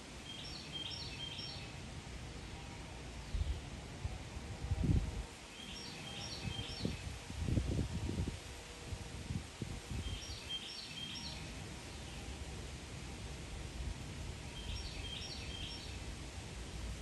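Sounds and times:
small bird singing: 0.3s - 1.7s, 5.5s - 7.0s, 10.0s - 11.4s, 14.5s - 16.0s
wind rumble on microphone: 3.2s - 5.4s, 6.0s - 10.5s.

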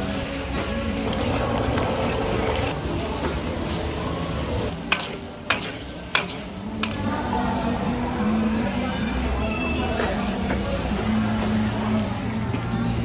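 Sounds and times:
metal utensils striking a wok: 4.9s - 7.0s.

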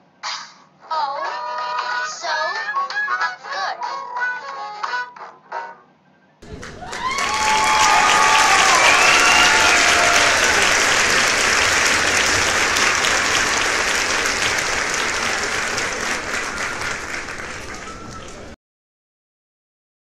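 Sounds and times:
audience applauding: 6.4s - 18.6s.

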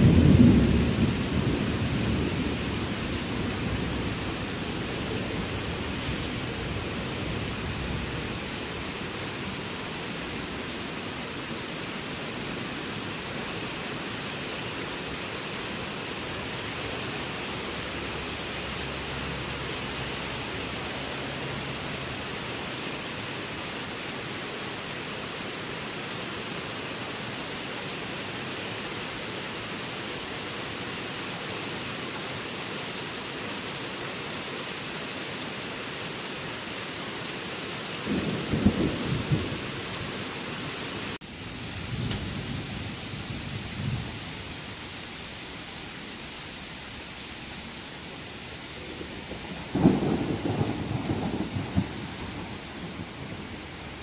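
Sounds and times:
thunder rumbling: 0.0s - 8.6s, 38.1s - 40.2s, 41.6s - 44.4s, 48.8s - 54.0s
steady rain hiss: 0.0s - 54.0s.

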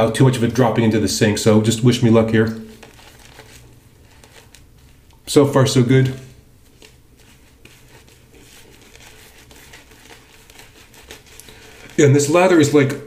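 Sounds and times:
shaving brush lathering on face: 6.8s - 12.5s.

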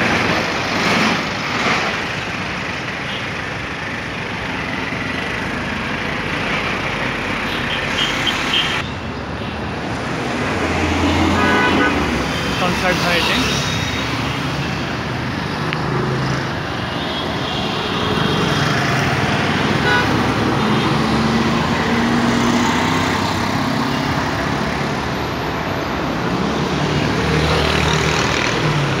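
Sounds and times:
vehicles passing: 0.0s - 29.0s
faint car horns tooting: 11.4s - 12.0s.

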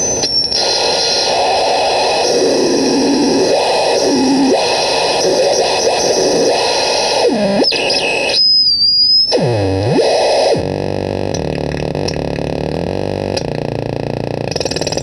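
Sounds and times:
harsh buzzy synth noise: 0.0s - 15.0s
low drone: 1.4s - 7.8s
thin high whistle: 7.6s - 9.3s.

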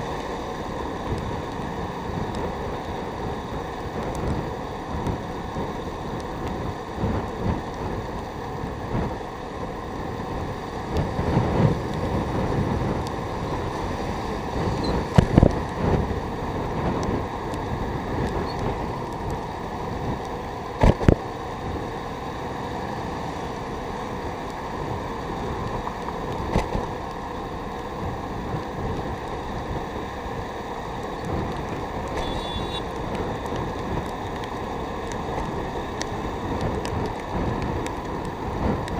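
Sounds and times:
motorcycle road noise: 0.0s - 38.9s
wind buffeting microphone: 0.0s - 38.9s.

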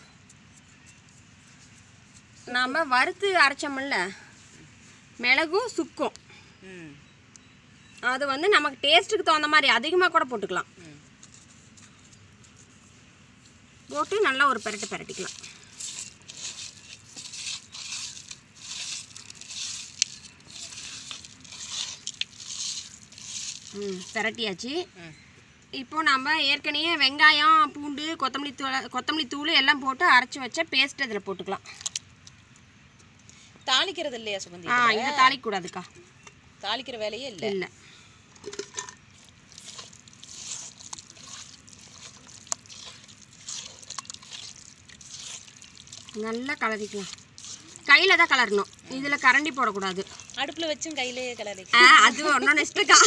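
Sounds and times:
meat rubbed with spices by hand: 13.9s - 24.4s, 39.1s - 52.9s.

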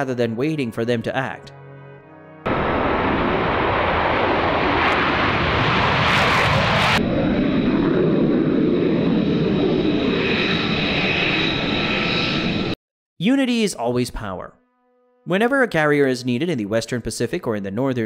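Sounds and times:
jet engine roar with whine: 2.5s - 12.8s.

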